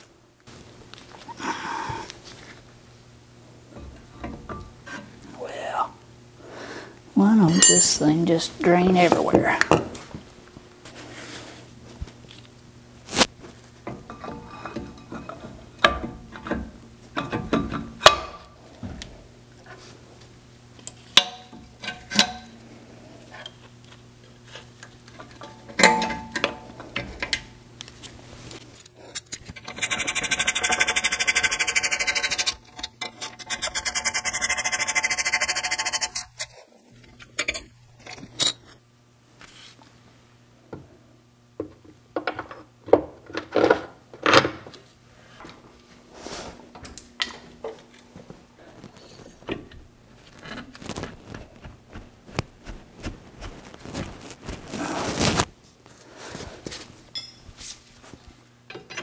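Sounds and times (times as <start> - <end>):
ratchet ratcheting: 29.6 - 32.6.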